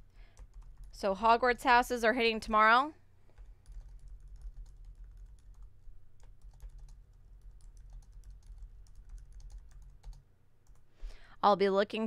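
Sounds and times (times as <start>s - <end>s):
typing on computer keyboard: 0.3s - 1.0s, 3.4s - 10.8s.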